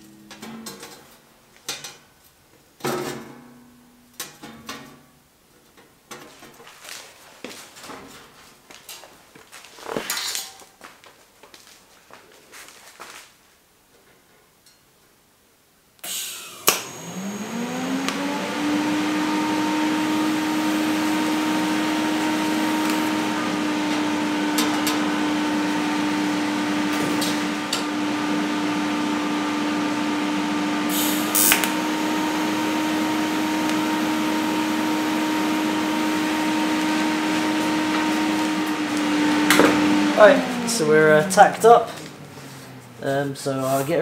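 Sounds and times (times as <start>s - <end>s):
electric motor whining: 16.0s - 43.0s.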